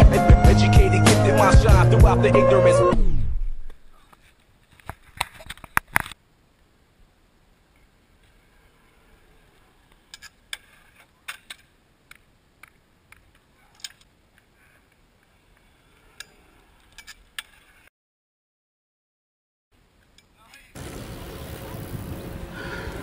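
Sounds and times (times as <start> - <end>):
low hiss: 3.6 - 17.9, 19.8 - 23.0.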